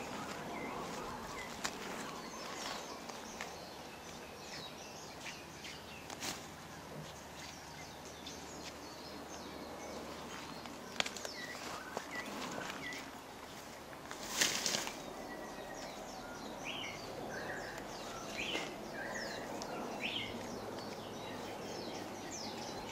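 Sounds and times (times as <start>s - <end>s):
birds chirping: 0.0s - 22.9s
outdoor background hiss: 0.0s - 22.9s.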